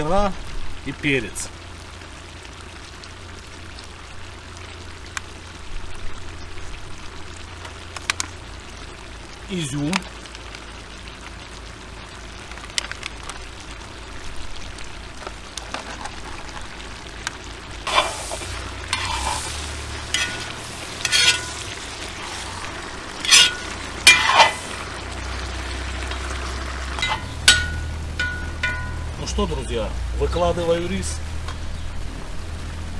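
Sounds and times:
food sizzling in oil: 0.0s - 32.9s
metal skimmer scraping pot: 17.8s - 29.2s.

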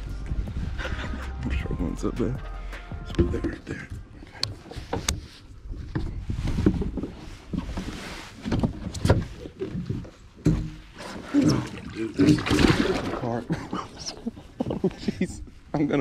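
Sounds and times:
water splashing: 11.0s - 13.5s.

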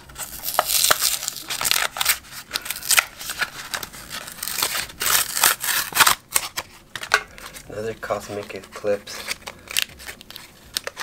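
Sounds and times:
paper tearing and crinkling: 0.0s - 6.8s.

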